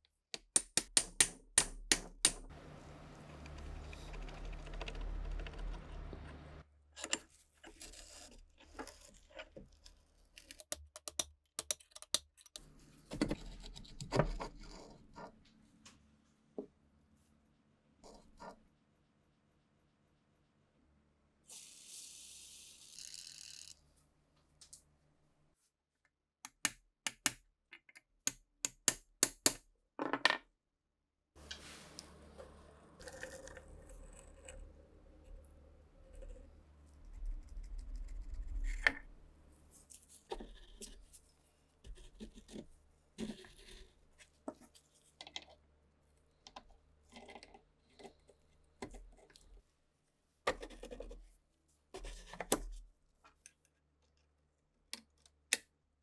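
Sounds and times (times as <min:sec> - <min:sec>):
low steady hum: 0:02.5 - 0:06.6, 0:31.4 - 0:39.9.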